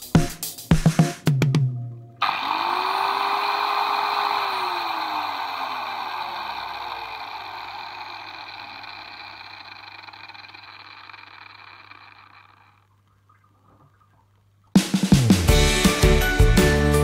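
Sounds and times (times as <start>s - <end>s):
disc grinder coasting down: 2.2s - 12.9s.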